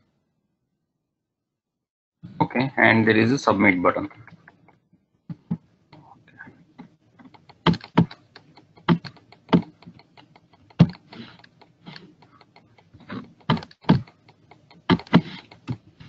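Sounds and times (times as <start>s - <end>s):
mouse clicks: 7.2s - 15.8s
computer keyboard typing: 7.2s - 15.9s.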